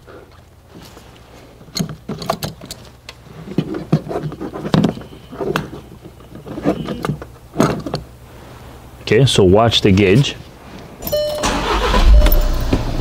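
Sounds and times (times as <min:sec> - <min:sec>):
hose fitting clicks and rattles: 0:01.6 - 0:03.2
diesel engine idling: 0:11.4 - 0:13.0.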